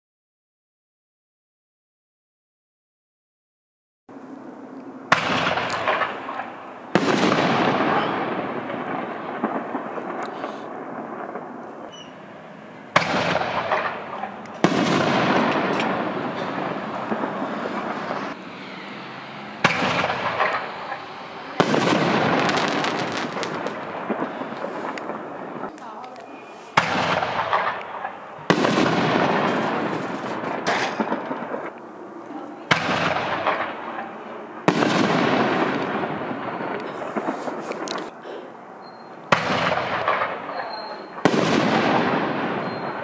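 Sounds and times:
echo of burst: 4.4s - 25.7s, 26.7s - 38.1s, 39.3s - 43.0s
firework crackle: 5.1s - 38.2s, 38.9s - 43.0s
firework shell burst: 12.9s - 18.4s, 19.6s - 25.3s, 38.9s - 43.0s.

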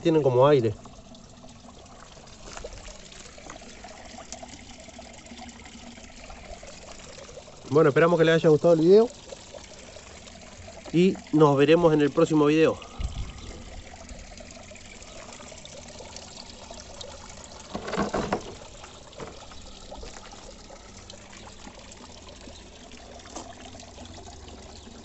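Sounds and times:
water pouring into pond: 0.0s - 25.0s.

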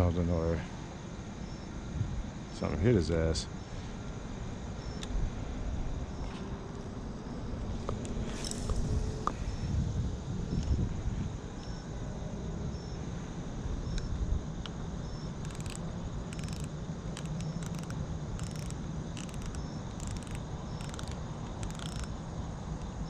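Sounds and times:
cricket chirping: 0.0s - 23.0s
steady low rumble: 0.0s - 23.0s
buzzing insect trills: 1.0s - 12.0s, 12.7s - 23.0s.

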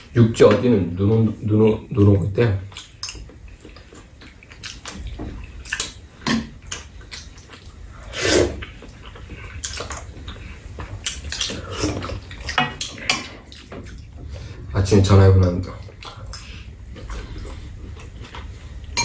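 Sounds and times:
wet chewing: 1.1s - 14.5s, 15.5s - 19.0s
slurping soup: 7.9s - 10.6s.

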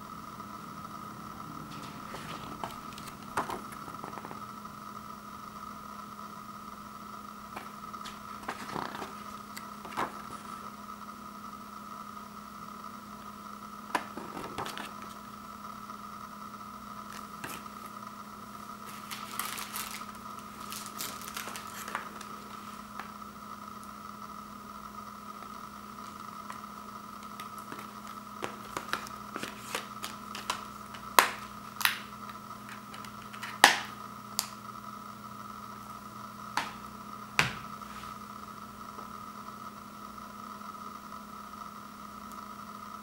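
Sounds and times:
background hum: 0.0s - 43.0s
paper pages turning: 1.7s - 4.5s, 7.6s - 10.7s, 14.0s - 15.2s, 17.1s - 17.9s, 18.8s - 23.1s, 27.2s - 33.7s.

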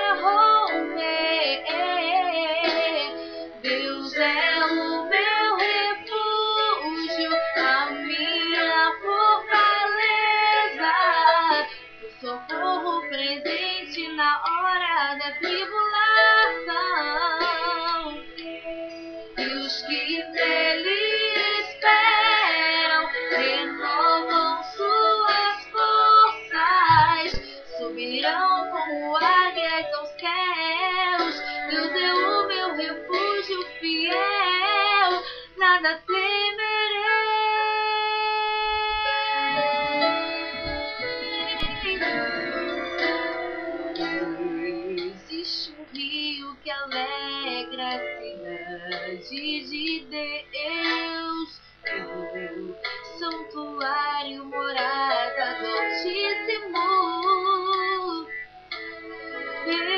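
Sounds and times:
woman singing worship song: 0.0s - 18.4s, 19.3s - 58.5s, 59.6s - 59.9s
instrumental accompaniment: 0.0s - 30.3s, 38.8s - 46.1s.

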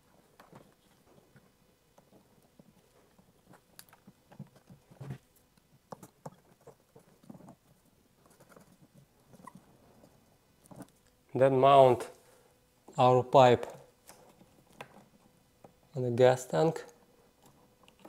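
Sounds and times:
faint clicks and taps: 0.0s - 11.2s.

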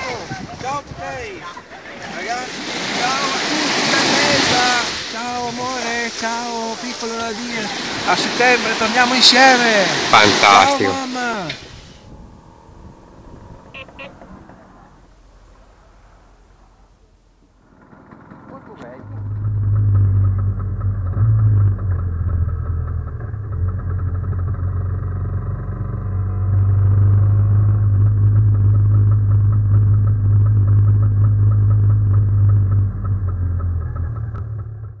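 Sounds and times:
scooter engine while riding: 11.6s - 35.0s.

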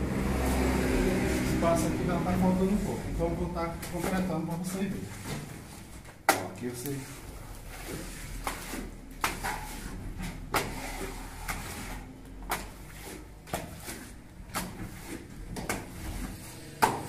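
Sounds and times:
plaster being smoothed: 6.7s - 16.8s.

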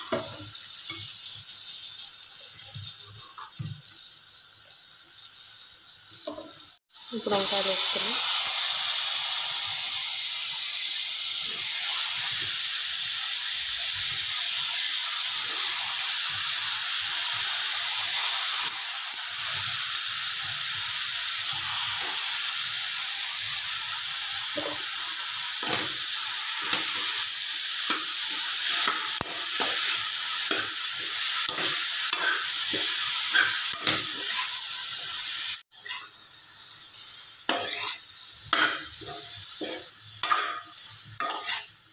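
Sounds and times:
slices sizzling in hot oil: 0.0s - 41.9s
steel spatula scraping a pan: 25.6s - 34.8s, 35.7s - 36.2s, 37.5s - 41.8s.

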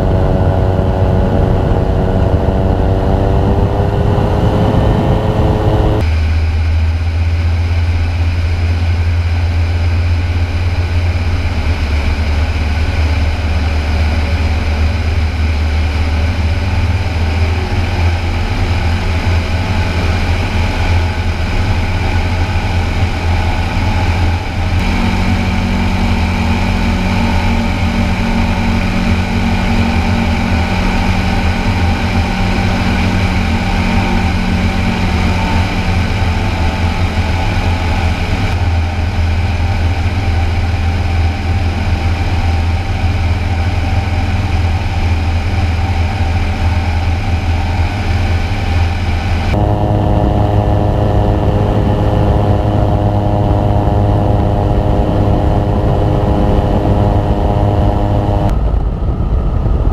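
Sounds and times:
microlight engine droning: 0.0s - 59.9s
higher steady note: 24.8s - 38.3s, 49.5s - 58.6s.

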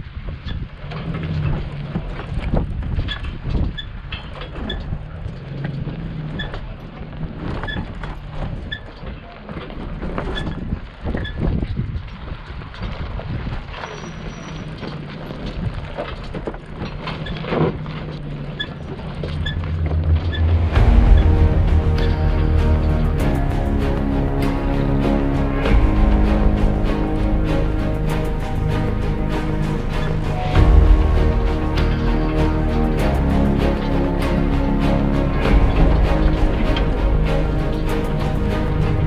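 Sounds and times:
truck engine running: 17.7s - 39.0s.

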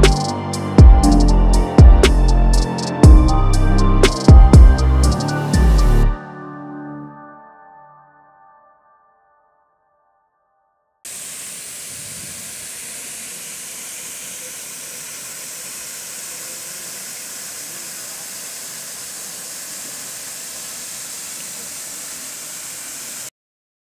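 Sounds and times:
flowing water of pool: 11.1s - 23.3s
waterfall rushing hiss: 11.1s - 23.3s.

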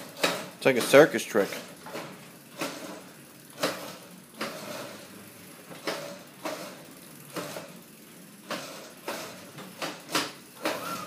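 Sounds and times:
electric motor whirring in surges: 10.6s - 11.0s.

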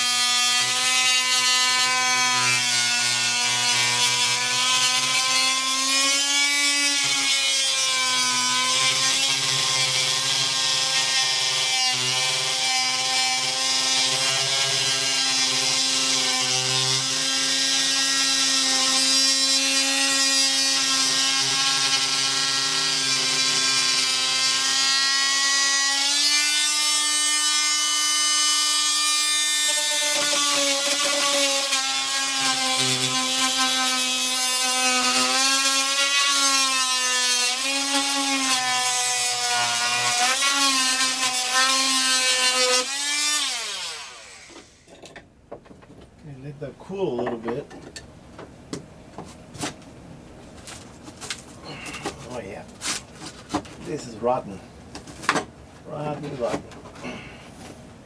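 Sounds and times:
oscillating multi-tool cutting: 0.0s - 44.9s.

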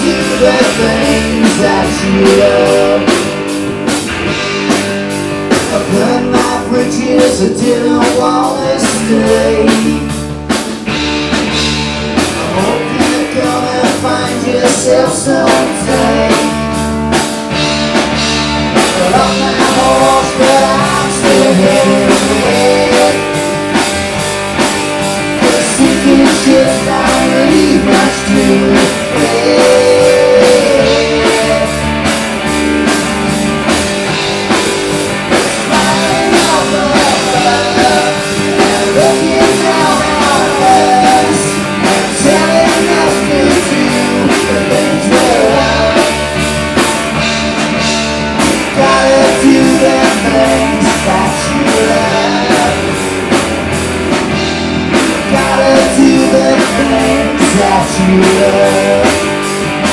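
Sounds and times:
person singing: 0.0s - 3.5s, 5.5s - 10.2s, 12.3s - 17.0s, 18.8s - 23.8s, 25.4s - 32.2s, 35.3s - 46.4s, 48.4s - 53.1s, 55.1s - 59.9s
bass guitar: 0.0s - 59.9s
distorted electric guitar: 0.0s - 59.9s
drum kit: 0.0s - 59.9s.

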